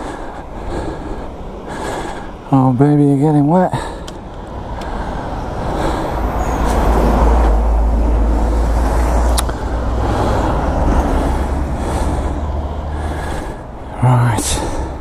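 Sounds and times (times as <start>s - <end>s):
tyres hissing on wet road: 4.6s - 13.6s.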